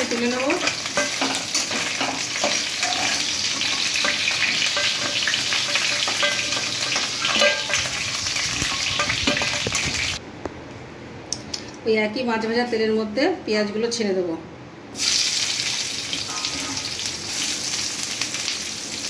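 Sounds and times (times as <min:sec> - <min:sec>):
fish sizzling in hot oil: 0:00.0 - 0:10.2, 0:15.0 - 0:19.0
metal spatula scraping pan: 0:00.6 - 0:10.2.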